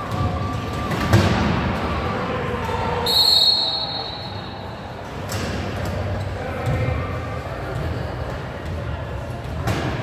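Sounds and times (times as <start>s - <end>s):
players' voices: 0.0s - 10.0s.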